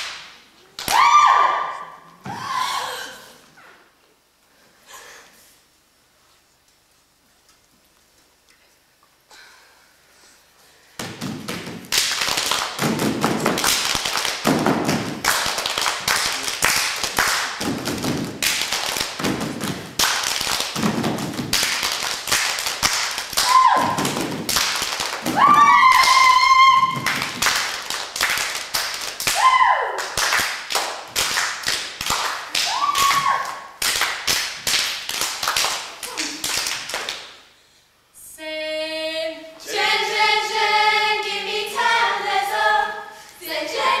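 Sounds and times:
feet stamping and clapping: 11.0s - 29.4s
high sliding whooping cries: 25.4s - 27.0s.

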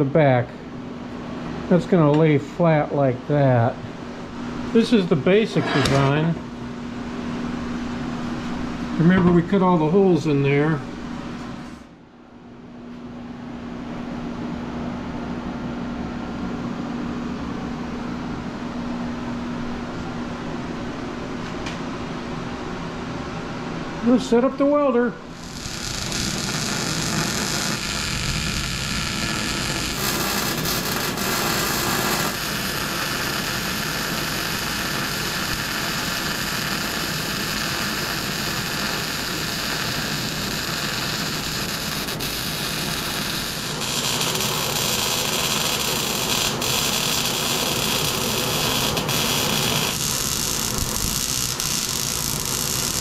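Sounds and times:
welder arc sizzling: 25.3s - 53.0s.

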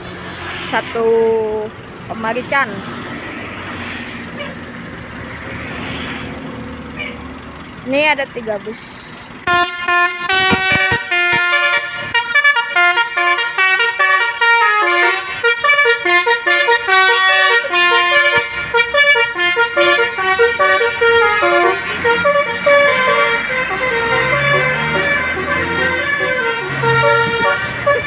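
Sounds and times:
bus engine: 0.0s - 28.0s
bus melody horn: 9.4s - 28.0s.

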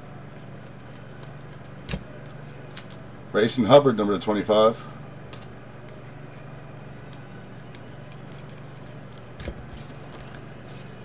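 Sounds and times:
steady low hum: 0.0s - 11.0s
trading cards rustling: 5.8s - 11.0s.

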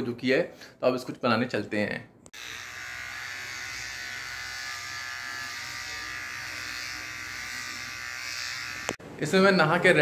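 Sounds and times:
electric shaver buzzing: 2.3s - 9.0s.

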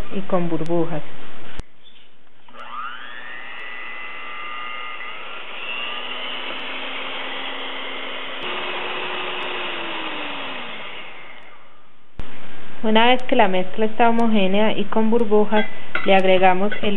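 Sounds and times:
electric hand mixer whining: 2.5s - 11.7s.

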